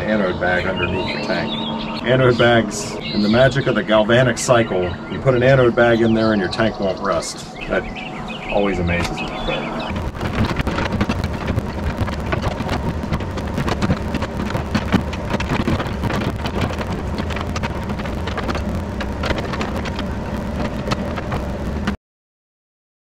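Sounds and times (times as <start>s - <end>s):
excavator diesel engine running: 0.0s - 22.0s
dirt and stones scraping: 8.9s - 22.0s.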